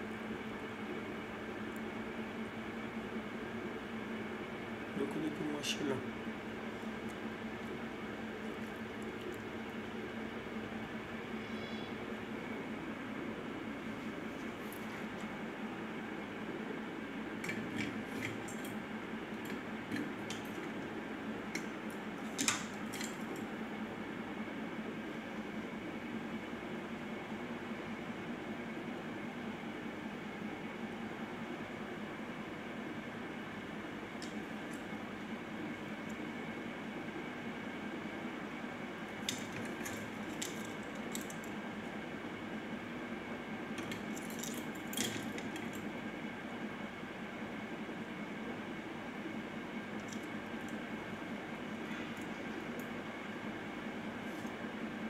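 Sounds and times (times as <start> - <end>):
steady low hum: 0.0 - 55.0.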